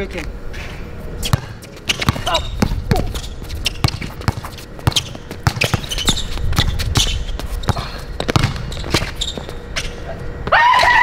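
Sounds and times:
sneakers squeaking: 0.5s - 11.0s
basketball bouncing: 1.3s - 9.9s.

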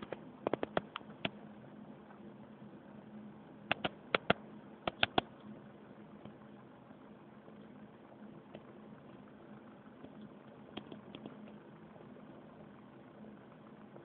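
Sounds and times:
faint low hum: 0.0s - 14.0s
electric motor sharp clicks: 3.7s - 5.3s.

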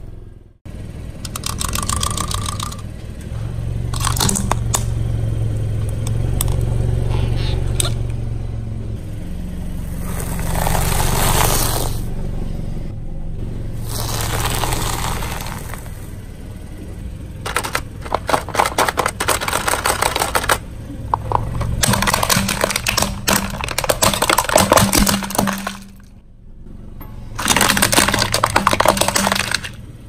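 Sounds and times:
car engine humming: 0.0s - 30.0s
tyre rolling on gritty concrete: 13.8s - 16.2s
crackles and clicks: 13.9s - 16.2s.

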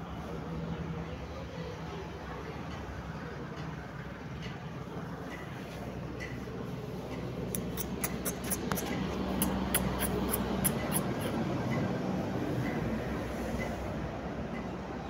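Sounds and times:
small sharp clicks: 7.1s - 11.1s.

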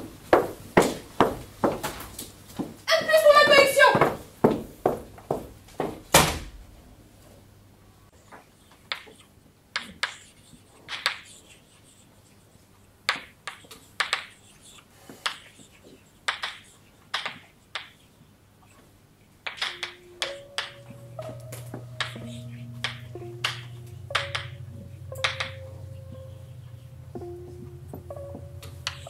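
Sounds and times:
sharp light taps: 19.5s - 26.3s.

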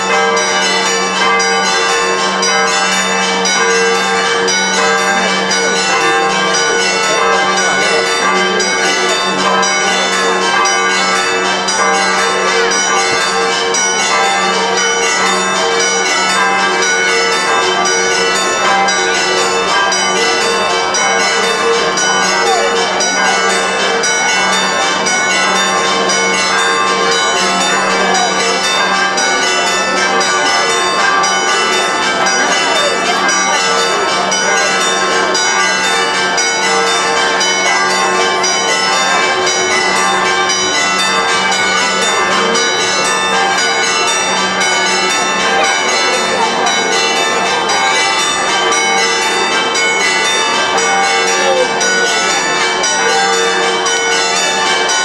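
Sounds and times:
church bells ringing: 0.0s - 55.0s
crowd voices: 0.0s - 55.0s.

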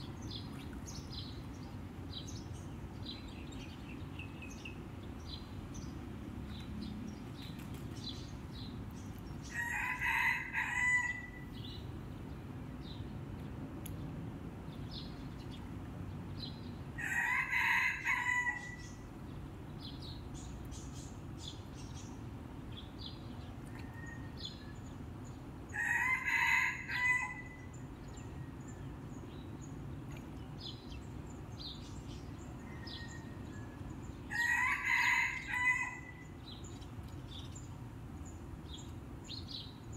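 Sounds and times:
rooster crowing: 9.5s - 11.5s, 17.0s - 18.8s, 25.7s - 27.7s, 32.6s - 36.3s.

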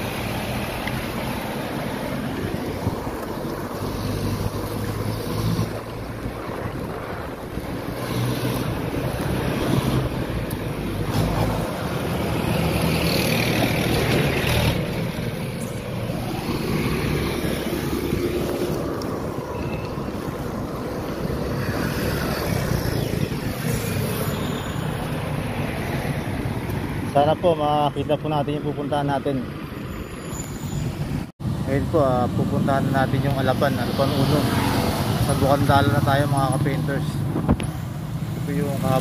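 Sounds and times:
road traffic engines: 0.0s - 39.0s
wind over microphone: 2.2s - 11.6s, 16.0s - 27.1s, 37.2s - 38.4s.

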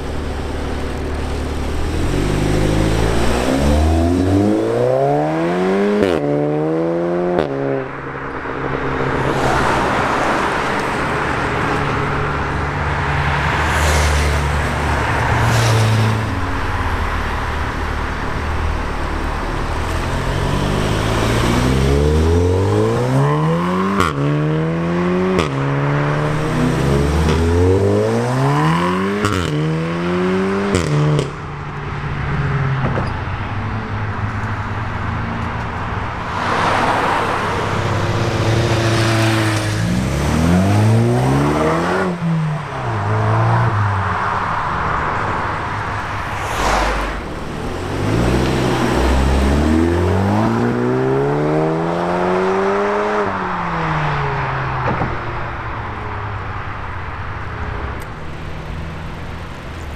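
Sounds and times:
car accelerating hard: 1.2s - 7.9s, 46.0s - 53.9s
car passing: 1.5s - 59.9s.

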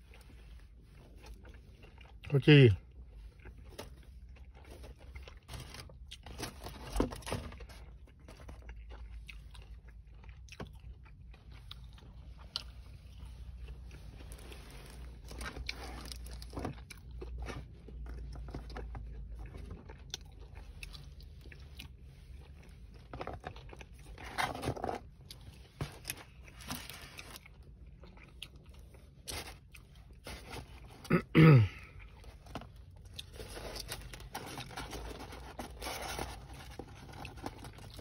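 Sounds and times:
fried chicken crunching: 31.7s - 38.0s.

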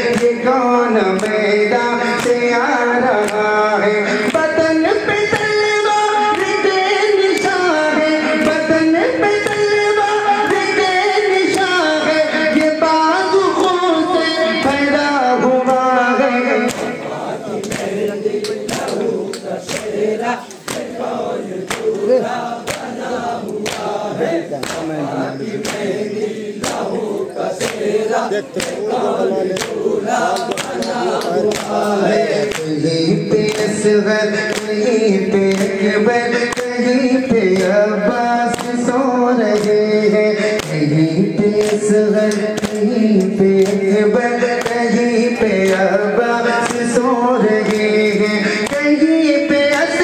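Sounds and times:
hands slapping chests: 0.0s - 0.4s, 1.1s - 2.5s, 3.1s - 3.5s, 6.2s - 8.7s, 9.4s - 11.9s, 16.6s - 32.8s, 33.4s - 34.9s, 35.5s - 36.9s, 37.5s - 37.8s, 38.5s - 46.0s, 46.6s - 47.0s, 47.6s - 49.1s
men chanting together: 0.0s - 50.0s
person singing a lament: 0.0s - 50.0s.

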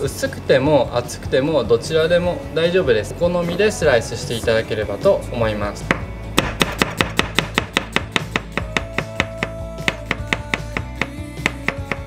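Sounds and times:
knife slicing onion on wooden board: 5.9s - 12.0s.

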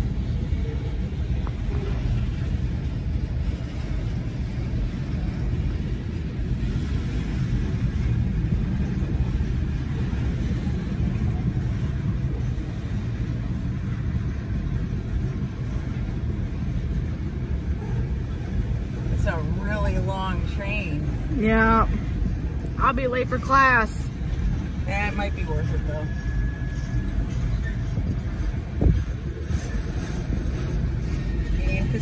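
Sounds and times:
train cars rumbling past: 0.0s - 32.0s.

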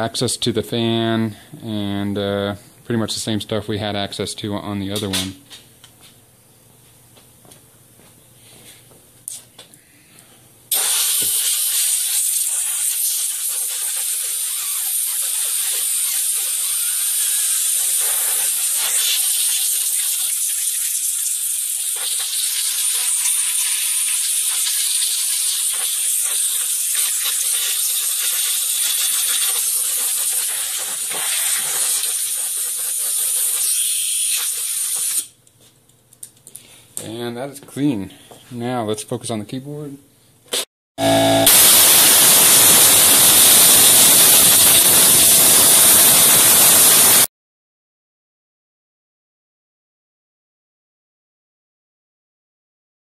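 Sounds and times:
compressed air hissing: 10.7s - 20.1s, 41.5s - 47.3s.

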